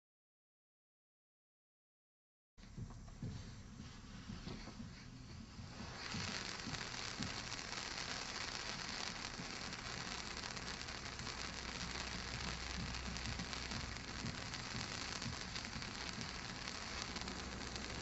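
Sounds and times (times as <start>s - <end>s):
firework fountain hissing: 4.0s - 18.0s.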